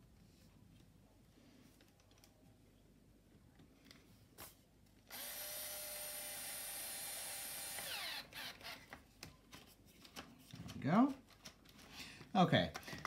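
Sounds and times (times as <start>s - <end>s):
electric screwdriver running: 5.1s - 8.9s.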